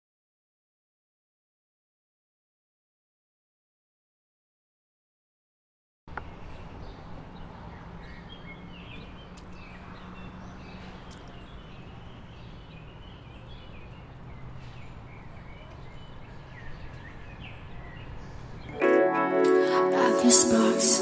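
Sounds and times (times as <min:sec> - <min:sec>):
bird chirps: 0:06.1 - 0:19.0.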